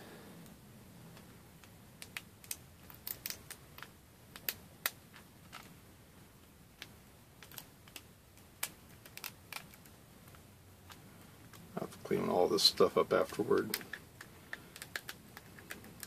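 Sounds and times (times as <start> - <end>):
plastic snapping and clicking: 1.1 - 5.7, 13.3 - 16.0.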